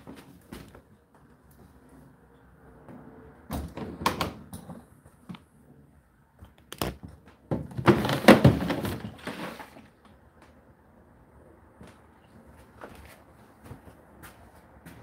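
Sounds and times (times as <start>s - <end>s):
water container drawer sliding out: 7.8s - 9.9s.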